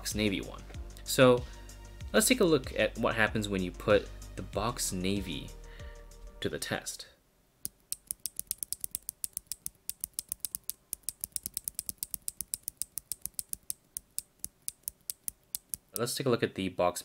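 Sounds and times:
keyboard switch clicking rapidly: 7.7s - 16.1s.

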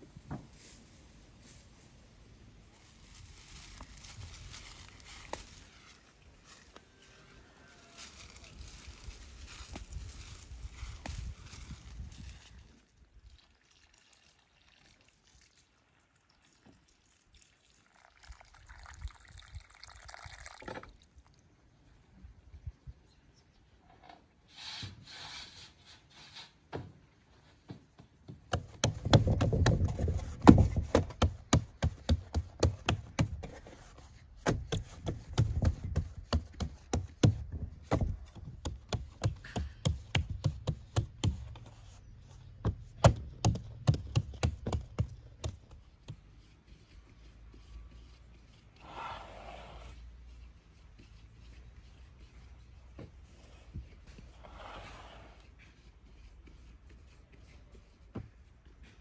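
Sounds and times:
rustle: 0.0s - 27.6s, 44.7s - 59.0s
hands patting bread dough: 27.7s - 41.8s, 42.6s - 48.2s.

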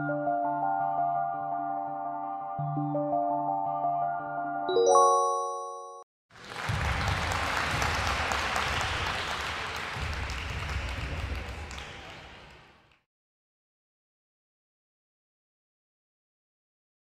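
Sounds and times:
crowd applause: 6.3s - 13.0s.

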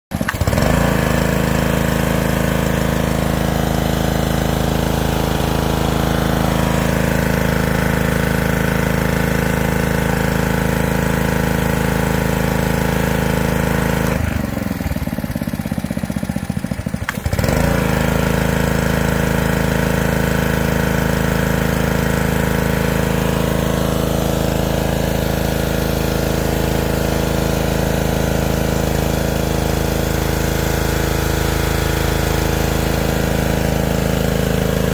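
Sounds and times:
pressure washer engine running: 0.1s - 34.9s
water jet hissing: 1.5s - 12.2s.

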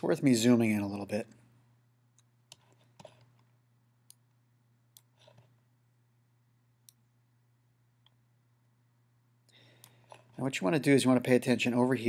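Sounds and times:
low steady hum: 0.0s - 12.0s
computer mouse clicks: 2.2s - 5.5s.

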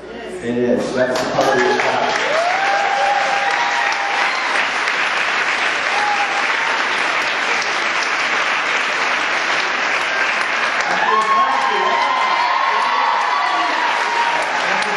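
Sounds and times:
audience applauding: 1.1s - 14.9s.

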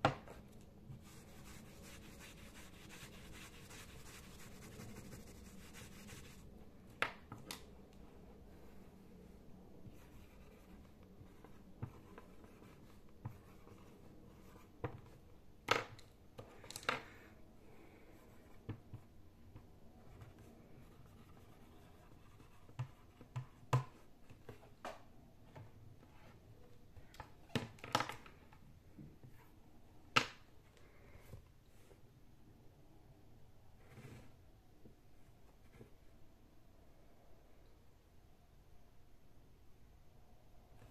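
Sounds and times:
marker scratching on whiteboard: 0.9s - 6.5s
marker tapping on whiteboard: 22.7s - 24.0s.

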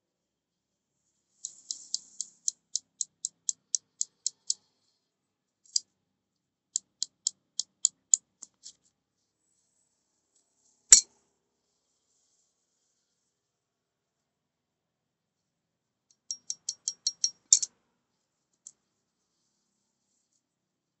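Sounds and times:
metal ticks and scrapes: 1.4s - 4.7s, 16.1s - 17.7s.

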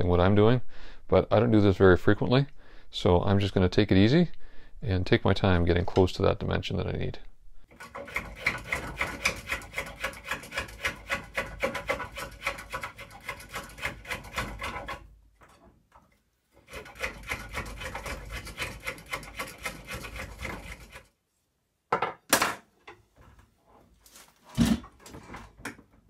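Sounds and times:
spoke shave rasping on wood: 7.7s - 15.1s, 16.6s - 21.1s.

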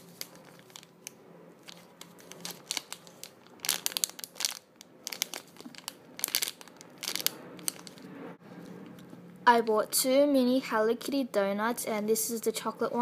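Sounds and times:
plastic packaging crinkling: 0.0s - 8.0s.

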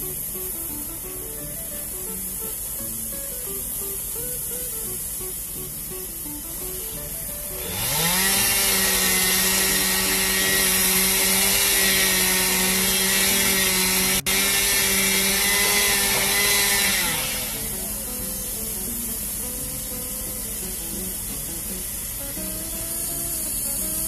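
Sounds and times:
chainsaw revving at full throttle: 7.0s - 24.0s.

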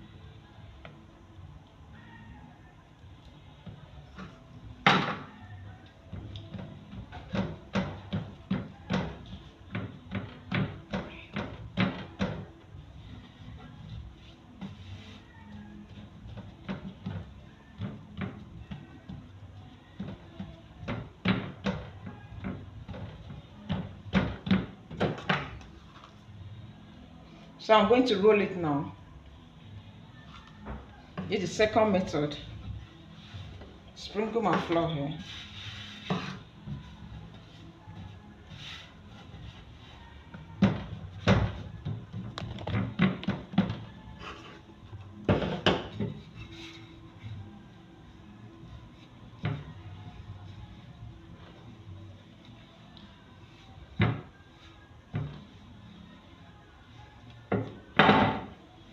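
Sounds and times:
rolling pin rolling: 6.1s - 26.2s, 30.6s - 44.2s.

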